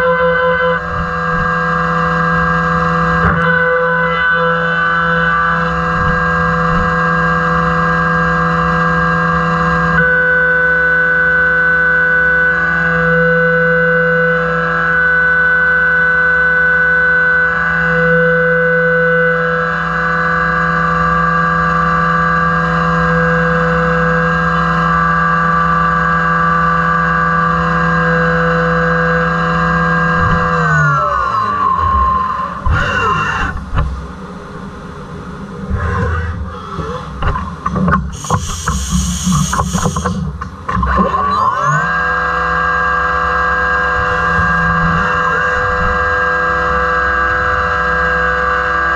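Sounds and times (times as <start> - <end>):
low machine hum: 0.0 - 48.9
milling machine cutting whine: 0.0 - 48.9
short burst of noise: 35.7 - 40.4.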